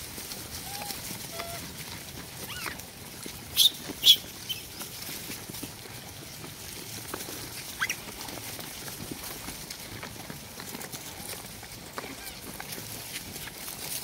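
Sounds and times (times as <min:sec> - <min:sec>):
monkeys chewing and rustling: 0:00.0 - 0:14.0
monkey squeak: 0:02.5 - 0:02.8, 0:03.6 - 0:04.7, 0:07.8 - 0:08.0.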